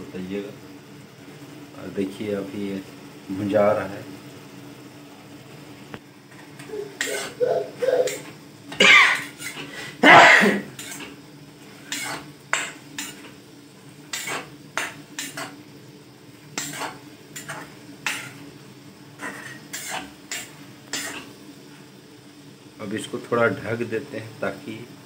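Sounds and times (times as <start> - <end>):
metal ladle scraping steel pan: 11.9 - 12.2.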